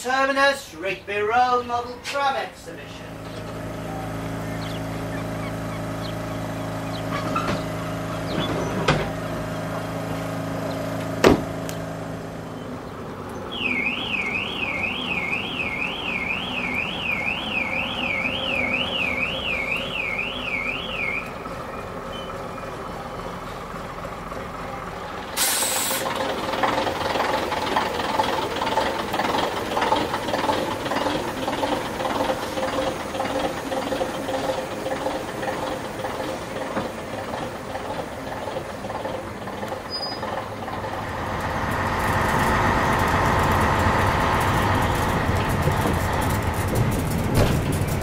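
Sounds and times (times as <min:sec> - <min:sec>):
engine running: 0:01.1 - 0:48.0
sharp knocks: 0:11.2 - 0:11.5
electronic alarm warbling: 0:13.5 - 0:21.4.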